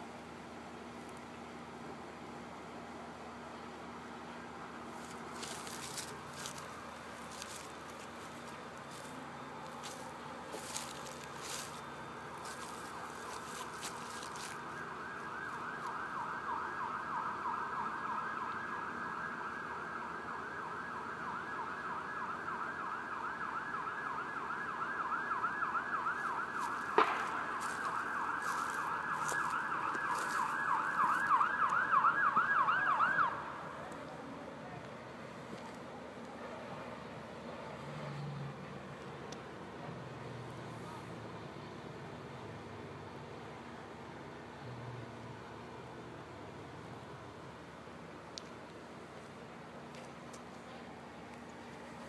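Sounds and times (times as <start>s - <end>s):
siren yelping: 14.6s - 33.6s.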